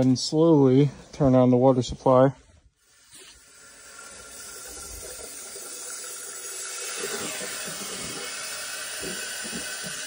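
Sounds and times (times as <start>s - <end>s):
water rushing into tank: 2.9s - 10.0s.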